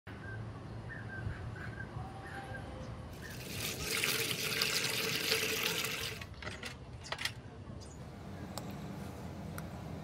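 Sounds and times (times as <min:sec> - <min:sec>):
water drips and splashes: 0:03.2 - 0:06.3
water pouring into plastic bucket: 0:03.2 - 0:06.3.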